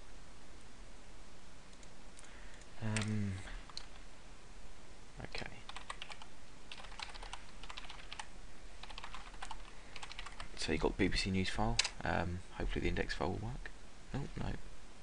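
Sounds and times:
typing on computer keyboard: 2.9 - 4.0, 5.7 - 10.6.

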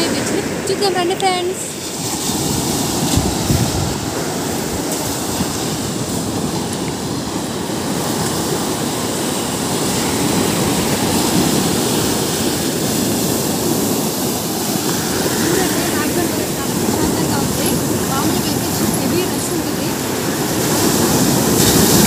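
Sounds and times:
sea surf breaking: 0.0 - 22.0.

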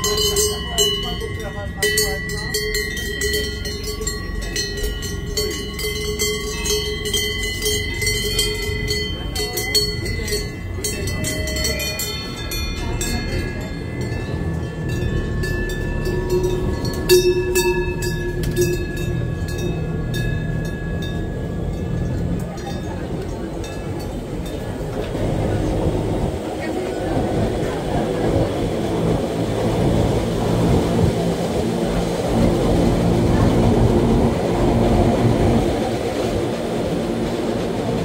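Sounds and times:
cowbells clanking and ringing: 0.0 - 26.7
low rumble: 0.0 - 38.0.

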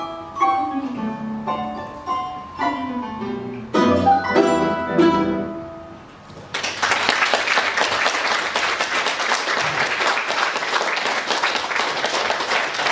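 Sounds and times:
plucked chord: 0.0 - 6.0
audience applauding: 6.5 - 12.9.

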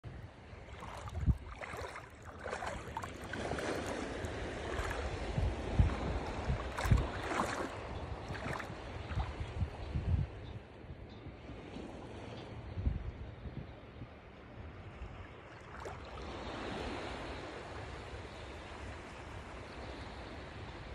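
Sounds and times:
wind buffeting microphone: 0.0 - 15.0
sea water lapping on sand: 0.4 - 9.8.

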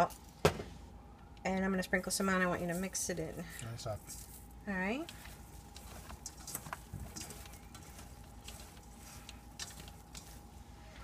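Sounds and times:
mushrooms clicking in metal colander: 5.0 - 10.6.

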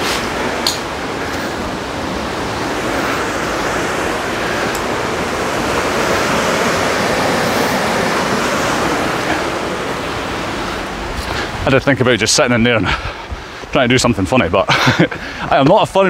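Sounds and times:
river rushing over rocks: 0.0 - 12.8.

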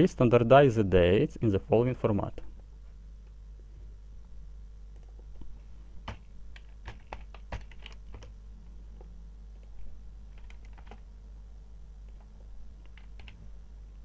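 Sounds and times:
faint low hum: 0.0 - 14.0
keyboard keystrokes: 5.0 - 8.3, 9.6 - 11.0, 12.1 - 13.4.

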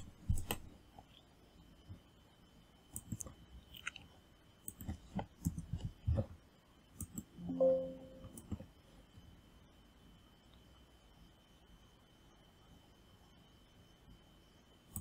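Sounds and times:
computer mouse clicks: 2.9 - 6.0, 7.0 - 7.3
short computer alert tone: 7.4 - 8.4.

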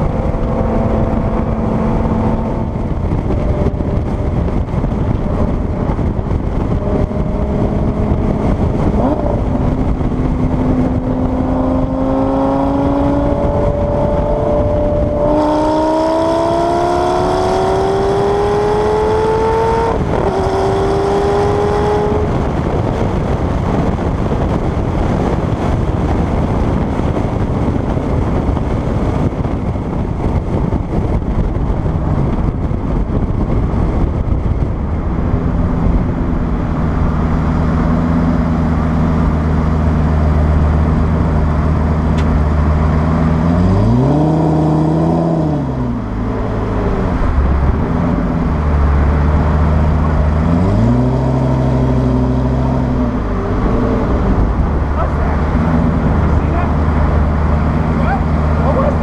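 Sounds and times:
sports car engine idling and revving: 0.0 - 59.0
wind and road noise: 0.0 - 59.0.

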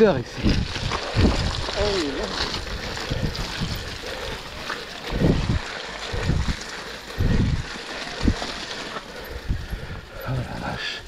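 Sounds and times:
bike tyres on muddy trail: 0.0 - 11.0
wind rushing: 5.1 - 8.5.

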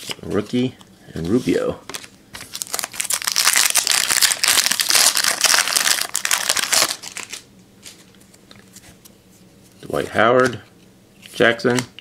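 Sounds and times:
foil wrapper crinkling: 1.9 - 8.1.

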